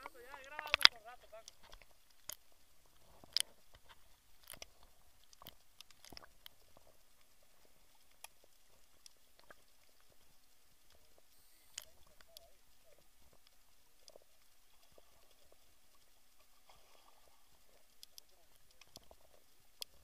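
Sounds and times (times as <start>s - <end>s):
underwater clicks and crackles: 0.0s - 20.0s.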